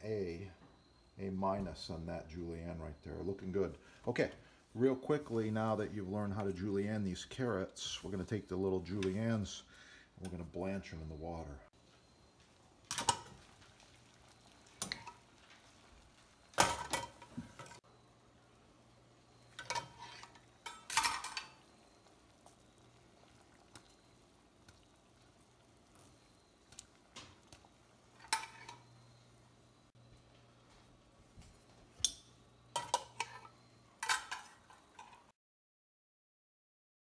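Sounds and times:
metal cookware clanking: 12.9s - 13.6s, 14.7s - 15.3s, 16.5s - 17.8s, 19.4s - 21.7s, 28.1s - 28.9s, 32.0s - 35.3s.

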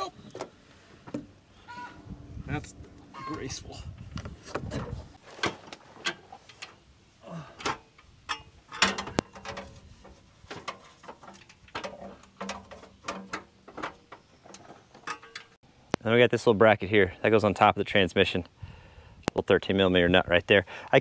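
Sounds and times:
metal tools clicking and scraping: 7.6s - 15.6s.

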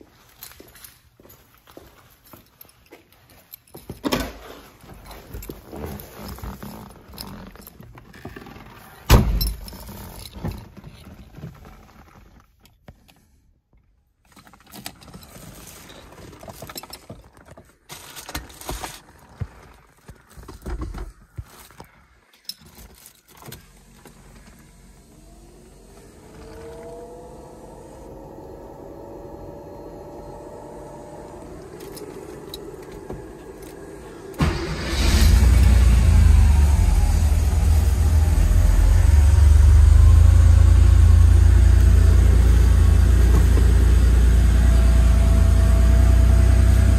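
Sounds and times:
keys jingling and clicking: 0.2s - 8.0s
car door shutting: 41.8s - 44.1s.

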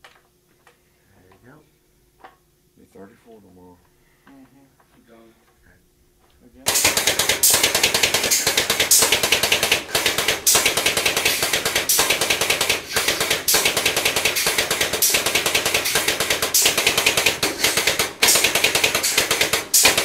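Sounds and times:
pipe wrench ratchet clicking: 6.7s - 20.0s.

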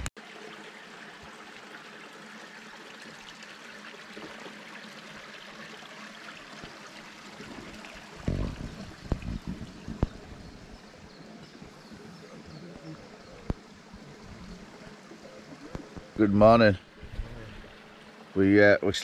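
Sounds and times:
low thumps: 8.1s - 10.8s.

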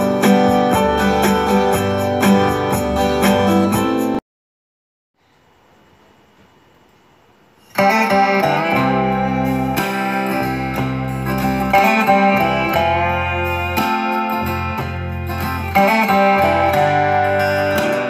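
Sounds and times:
plucked guitar music: 0.0s - 4.2s, 7.7s - 18.0s
faint hiss: 5.2s - 8.6s.

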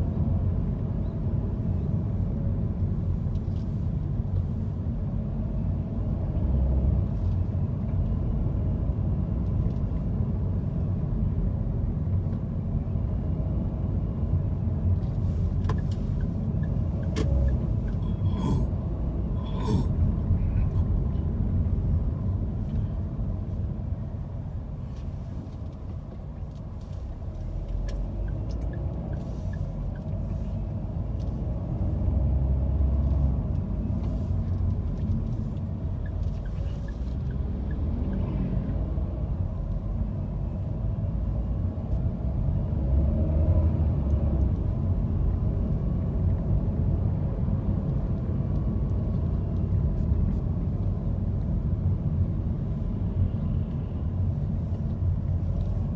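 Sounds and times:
car driving rumble: 0.0s - 55.9s.

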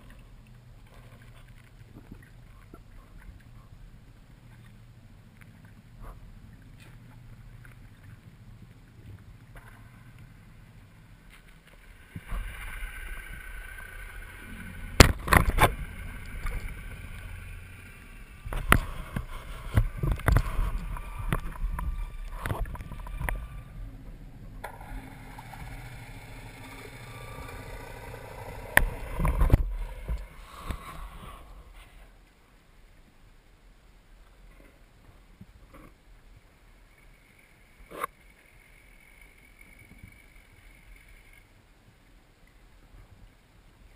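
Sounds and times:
water rush and bubbling: 0.0s - 31.8s.

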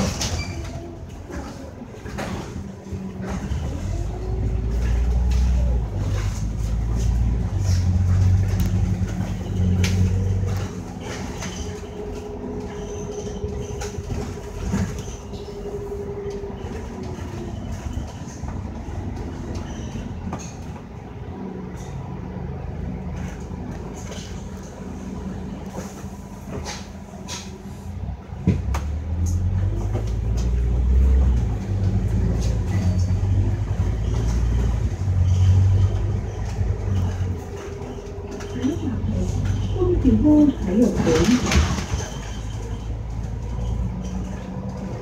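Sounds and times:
bus engine and road rumble: 0.0s - 45.0s
body rattles: 31.7s - 45.0s.

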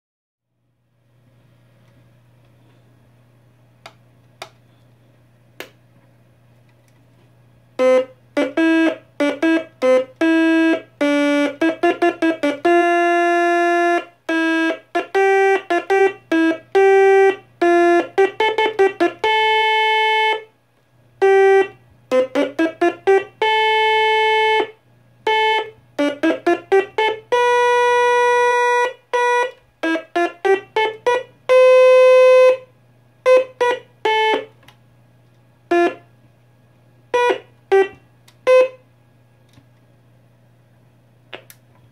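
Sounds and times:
low steady hum: 0.5s - 41.9s
toy organ buzzy notes: 7.8s - 20.5s, 21.2s - 34.6s, 35.7s - 36.1s, 37.1s - 38.8s.

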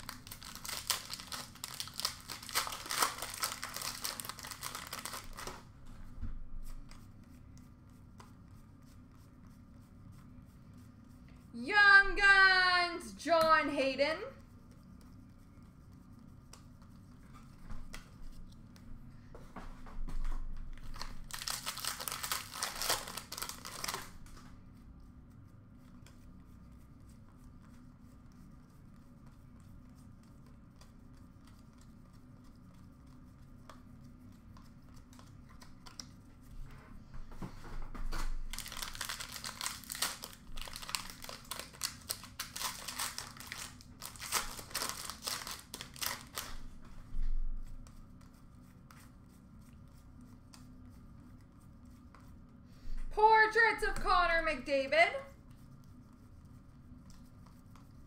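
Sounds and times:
card pack wrappers crinkling and tearing: 0.0s - 5.6s, 20.9s - 24.2s, 38.5s - 46.6s
quiet card handling: 29.0s - 36.6s.

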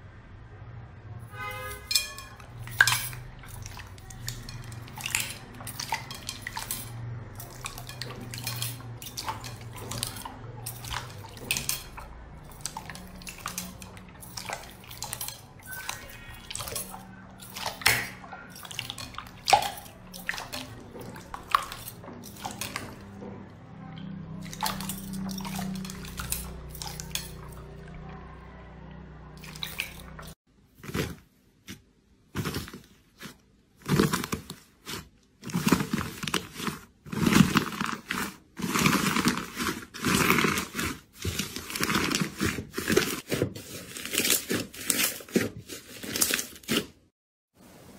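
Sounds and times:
hands squishing slime: 2.6s - 23.1s.

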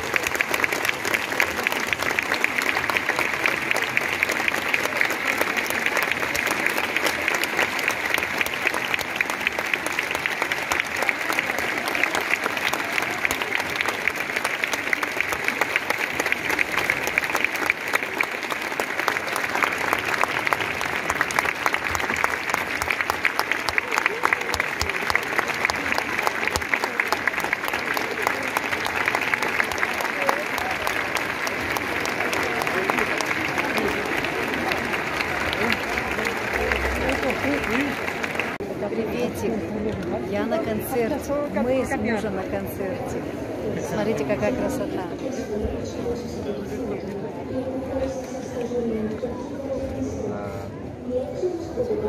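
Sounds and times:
audience applauding: 0.0s - 39.4s.

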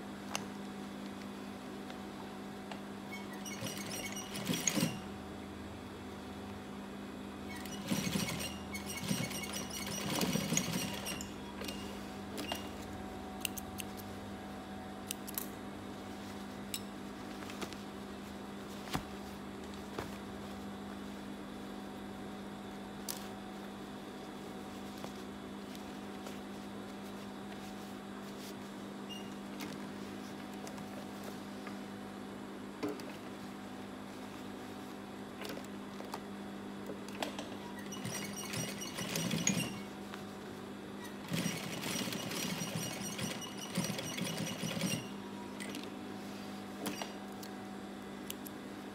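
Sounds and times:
sewing machine motor hum: 3.1s - 5.2s, 7.5s - 13.0s, 37.6s - 40.0s, 41.0s - 45.2s.

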